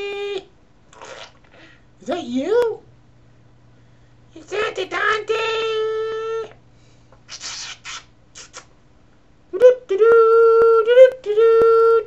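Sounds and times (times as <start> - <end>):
person singing wordless tune: 9.5 - 12.0.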